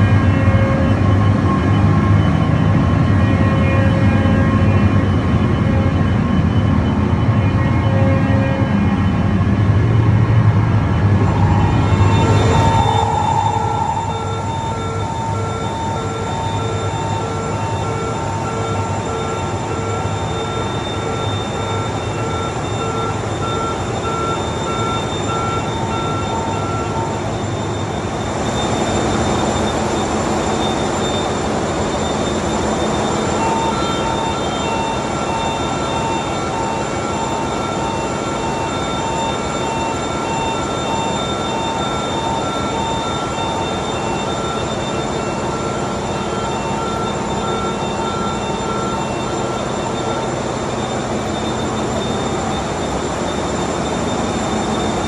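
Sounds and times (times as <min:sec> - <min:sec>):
constant whining tones: 0:00.0 - 0:55.0
engine room machinery drone: 0:00.0 - 0:55.0.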